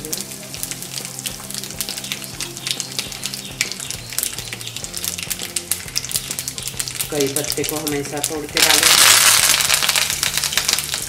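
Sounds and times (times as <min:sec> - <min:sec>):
seeds sizzling in hot oil: 0:00.0 - 0:11.0.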